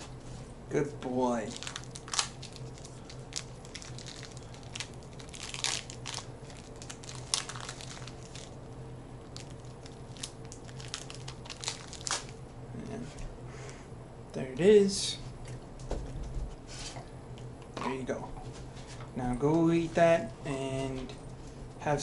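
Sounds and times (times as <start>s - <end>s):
steady low hum: 0.0s - 22.0s
packaging crinkling: 1.4s - 8.6s, 9.2s - 12.4s.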